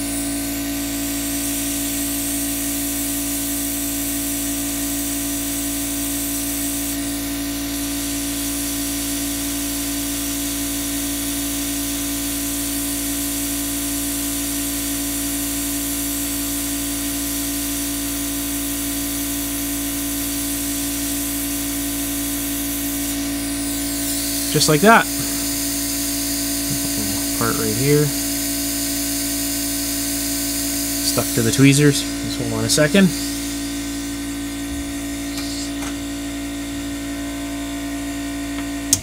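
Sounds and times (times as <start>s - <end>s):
hot air hissing from nozzle: 0.0s - 37.0s
constant hum: 23.2s - 28.4s, 31.0s - 36.4s.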